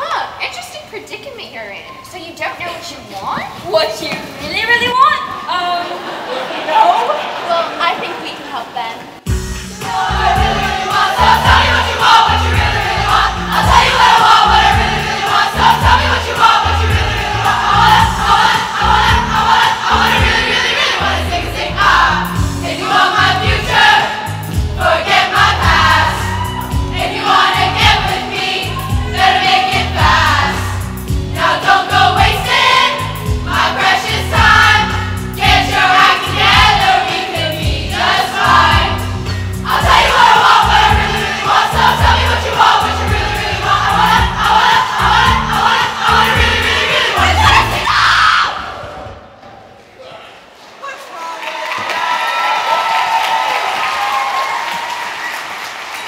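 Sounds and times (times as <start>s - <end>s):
backing track with heavy beat: 9.2s - 48.0s
group singing a pop song: 9.6s - 49.1s.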